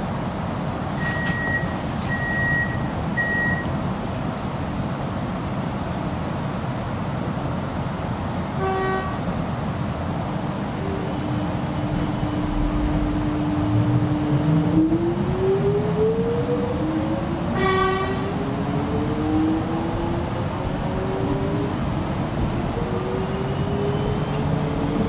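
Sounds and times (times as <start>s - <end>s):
short high beeps: 1.0s - 3.7s.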